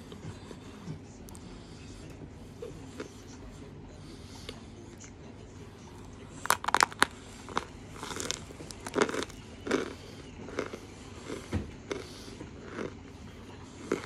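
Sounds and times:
chewing: 0:06.0 - 0:14.0.

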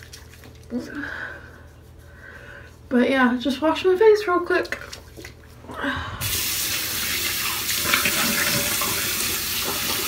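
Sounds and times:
water running into basin: 0:00.0 - 0:00.9, 0:06.2 - 0:10.0.

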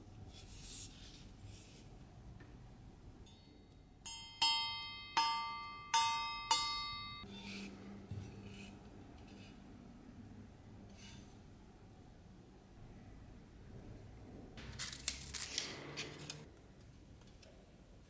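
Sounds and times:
metal blade flicked ringing: 0:03.3 - 0:07.3.

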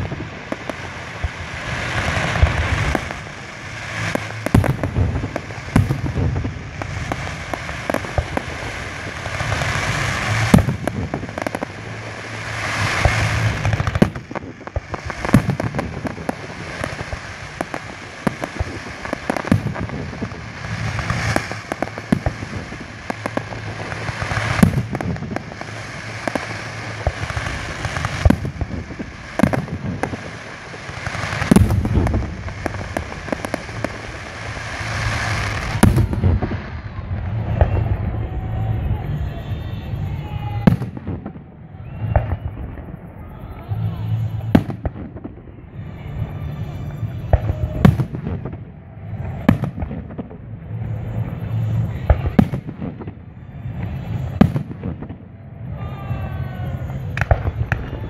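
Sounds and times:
rush of burning fireworks: 0:00.0 - 0:58.0.

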